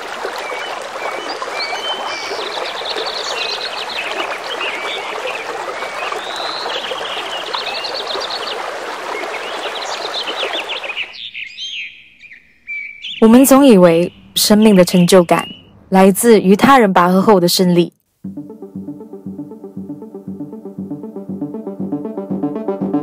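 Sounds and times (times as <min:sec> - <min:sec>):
heavy rain splashing: 0:00.0 - 0:11.0
small birds chirping: 0:00.4 - 0:15.8.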